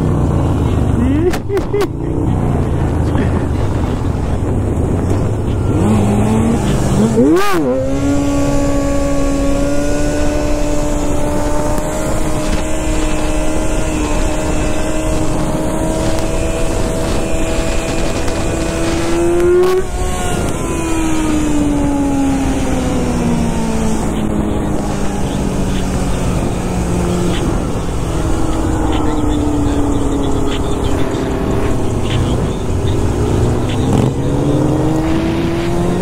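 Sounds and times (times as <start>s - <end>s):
dirt bike engine: 0.0s - 36.0s
wind rushing: 3.2s - 36.0s.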